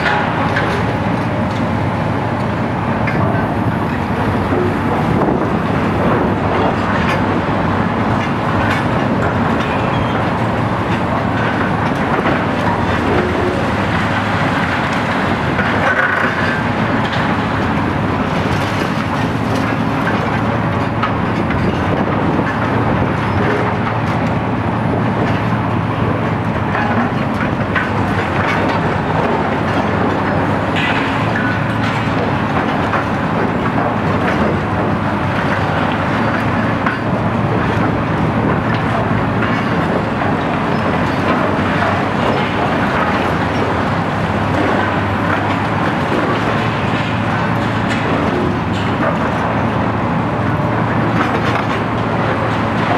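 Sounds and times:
diesel engines running under load: 0:00.0 - 0:52.9.

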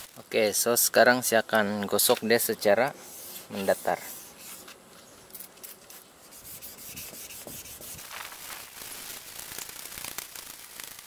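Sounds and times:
sandpaper rubbing on plastic: 0:03.0 - 0:04.8, 0:05.6 - 0:09.0.

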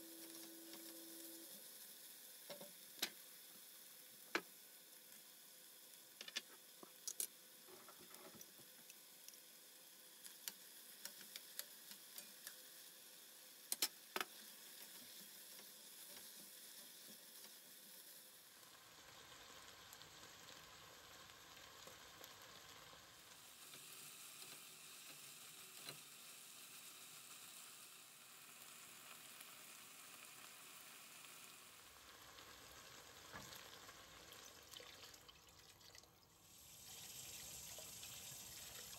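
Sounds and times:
food sizzling in a pot: 0:00.0 - 0:38.9
water pouring into a pot: 0:29.2 - 0:38.9.

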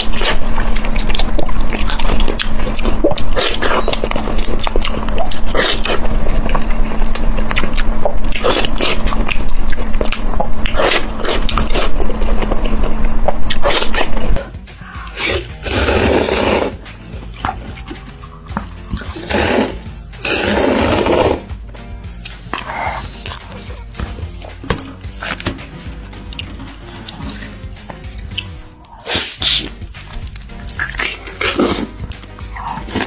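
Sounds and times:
wet chewing and mouth smacks: 0:00.0 - 0:14.4, 0:22.2 - 0:33.0
slurping noodles: 0:08.3 - 0:09.6, 0:10.6 - 0:12.4, 0:15.0 - 0:16.8, 0:18.3 - 0:21.5, 0:30.6 - 0:33.0.

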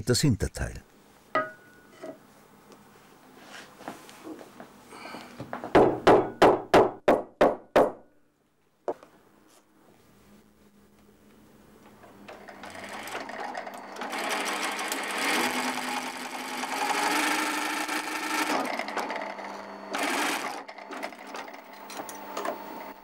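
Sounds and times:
sewing machine stitching: 0:12.3 - 0:23.0.

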